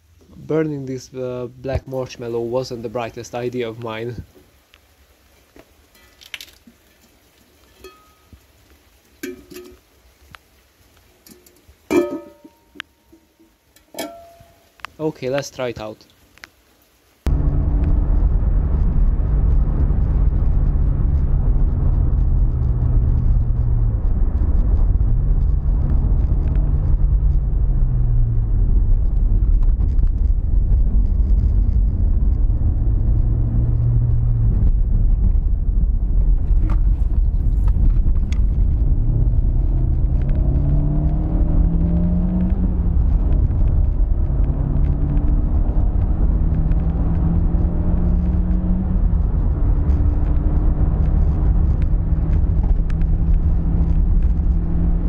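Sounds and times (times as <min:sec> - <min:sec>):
road rumble: 0:16.4 - 0:55.0.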